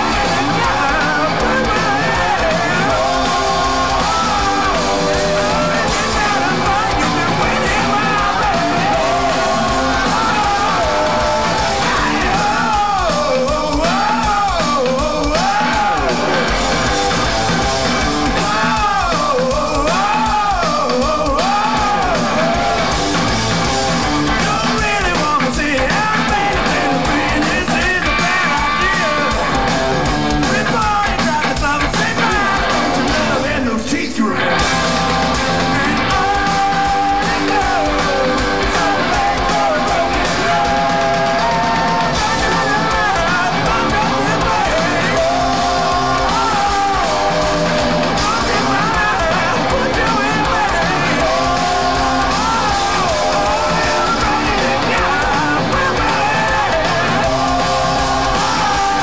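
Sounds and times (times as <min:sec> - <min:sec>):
person singing yelled vocals: 0:00.0 - 0:16.6, 0:18.2 - 0:23.0, 0:24.3 - 0:29.7, 0:30.4 - 0:34.7, 0:35.4 - 0:59.0
rock band playing live: 0:00.0 - 0:59.0.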